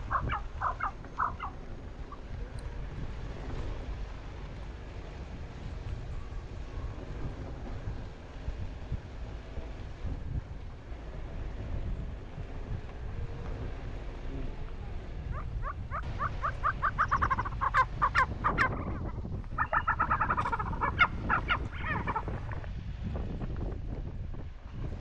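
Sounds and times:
bird calling repeated notes: 0:00.0 - 0:02.3, 0:15.3 - 0:22.2
wind rumble on microphone: 0:00.0 - 0:25.0.

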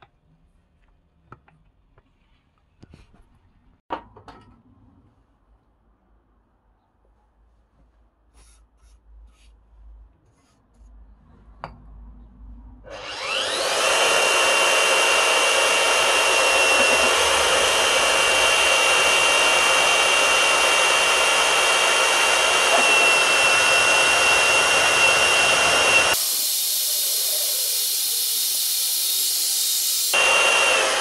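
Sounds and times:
cutter boring into steel: 0:12.9 - 0:31.0
magnetic drill whining: 0:12.9 - 0:31.0.

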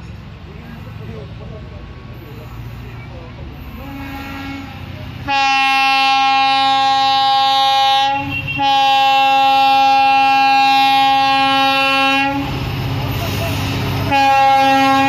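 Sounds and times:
diesel locomotive engine running: 0:00.0 - 0:15.0
locomotive air horn blasts: 0:03.7 - 0:12.6, 0:14.0 - 0:15.0.

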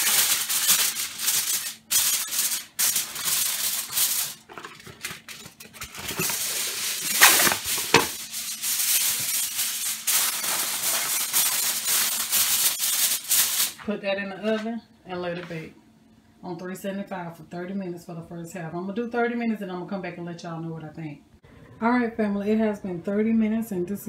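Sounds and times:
aluminium foil crinkling: 0:00.0 - 0:13.9.

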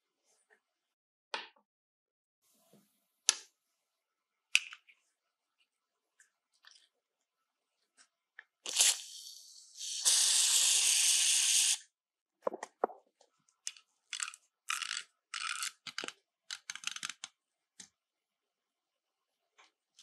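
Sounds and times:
aerosol spray hissing: 0:08.7 - 0:11.8.

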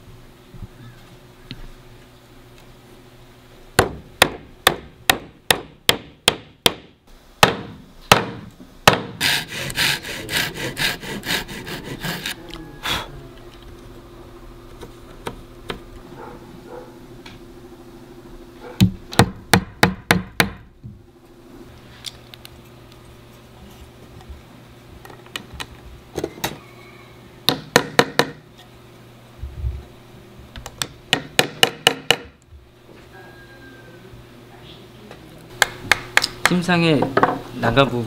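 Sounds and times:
hammer knocking on wood: 0:03.8 - 0:09.2, 0:18.8 - 0:20.6, 0:27.5 - 0:28.4, 0:31.1 - 0:32.4.

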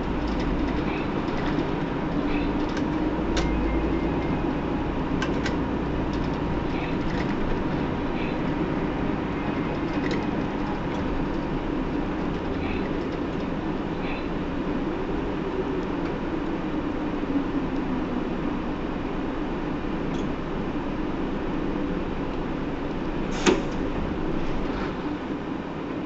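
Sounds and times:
sharp clicks and rattles: 0:00.0 - 0:04.3, 0:05.2 - 0:07.8, 0:09.6 - 0:13.6
bus engine and road rumble: 0:00.0 - 0:26.0.

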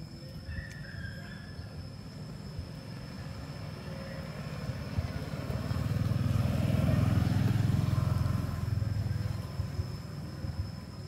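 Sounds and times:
motorbike engine passing: 0:03.0 - 0:10.8.

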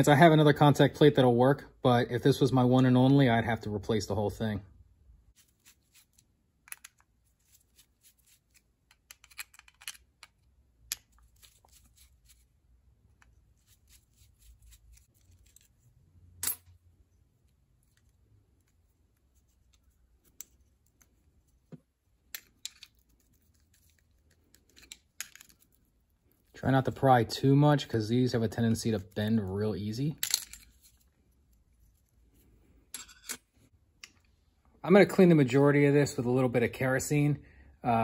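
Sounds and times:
screwdriver clicking and scraping metal: 0:08.3 - 0:11.8, 0:33.0 - 0:33.5.

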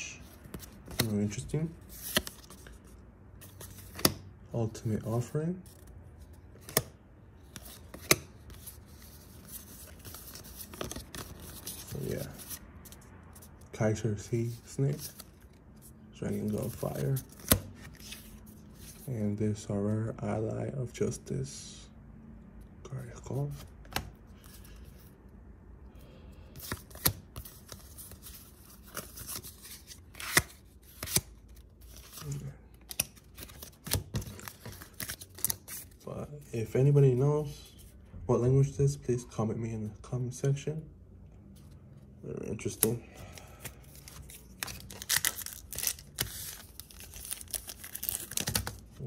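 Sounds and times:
cards sliding against each other: 0:01.8 - 0:04.2, 0:06.5 - 0:13.5.

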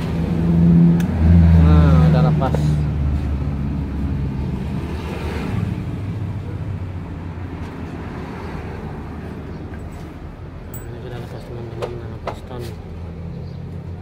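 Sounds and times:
vehicle engine rumbling: 0:00.0 - 0:14.0.

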